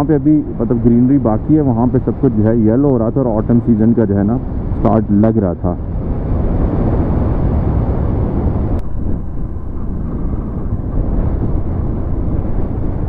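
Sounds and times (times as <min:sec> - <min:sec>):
motorcycle riding rumble: 0:00.0 - 0:13.0
wind buffeting microphone: 0:00.0 - 0:13.0.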